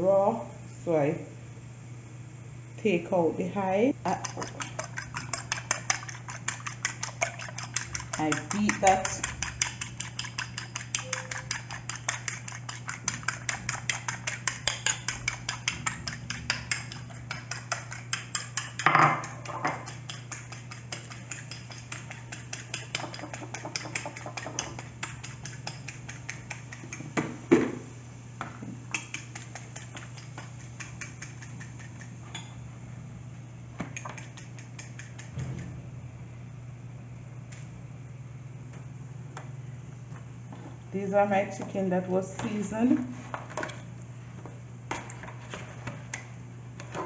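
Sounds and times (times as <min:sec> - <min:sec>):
fork beating eggs in bowl: 0:03.9 - 0:27.5, 0:28.8 - 0:32.7, 0:33.8 - 0:35.7.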